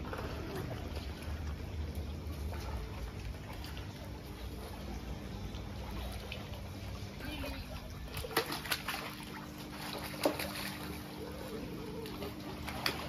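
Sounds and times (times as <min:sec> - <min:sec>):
steady low hum: 0:00.0 - 0:13.0
fish splashing at surface: 0:08.0 - 0:13.0.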